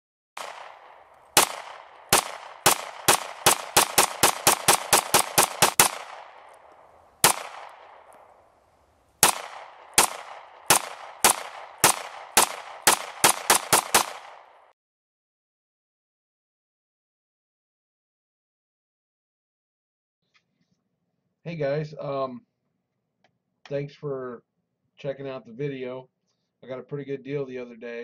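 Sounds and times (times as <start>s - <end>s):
pistol shots: 0.4s - 8.5s, 9.2s - 14.7s.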